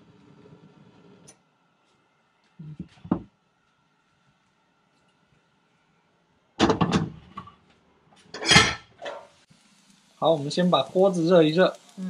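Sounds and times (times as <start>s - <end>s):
wok knocking on burner grate: 3.0s - 3.3s, 6.6s - 7.5s.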